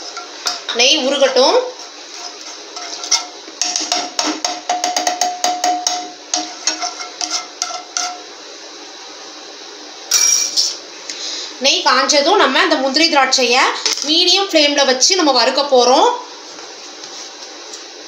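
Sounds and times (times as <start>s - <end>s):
spatula tapping and scraping a pan: 0.0s - 0.8s, 1.8s - 8.3s
spatula clatter: 0.0s - 8.3s.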